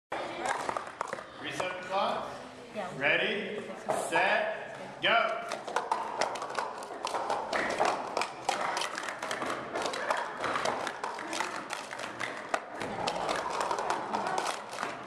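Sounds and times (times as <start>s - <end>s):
plastic cups clicking and clattering: 0.3s - 1.8s, 5.3s - 15.0s.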